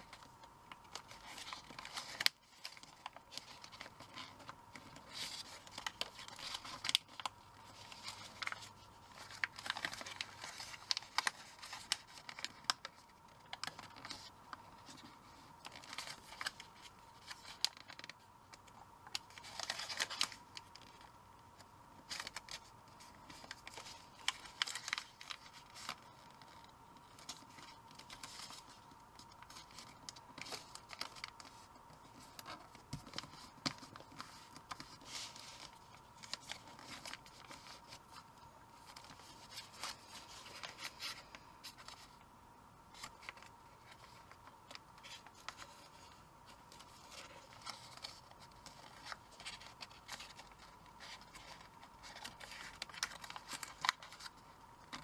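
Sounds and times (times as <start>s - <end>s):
paper rustling and crinkling: 0.0s - 42.3s, 42.9s - 55.0s.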